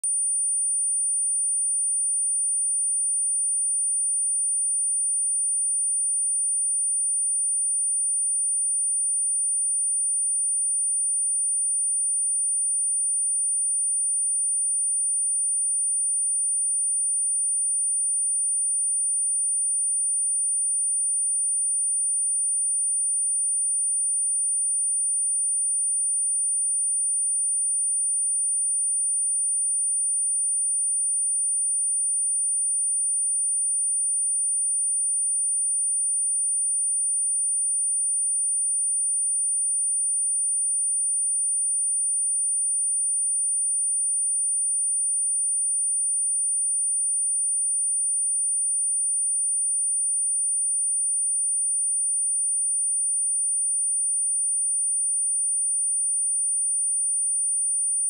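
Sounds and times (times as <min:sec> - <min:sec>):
high-pitched sine test tone: 0:00.0 - 0:03.0, 0:47.7 - 0:58.0.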